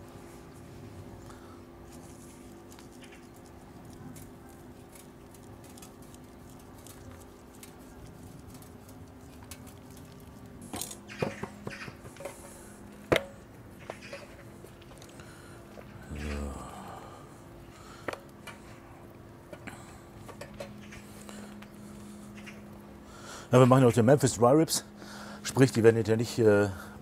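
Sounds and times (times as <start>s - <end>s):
low hum: 0.0s - 27.0s
dry rub pattering on meat: 0.4s - 13.0s.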